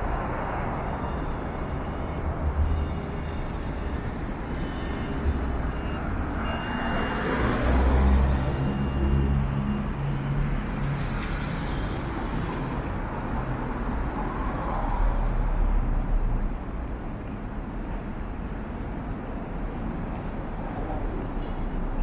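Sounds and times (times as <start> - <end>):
vehicle engine humming: 0.0 - 13.2
steady road noise: 0.0 - 22.0.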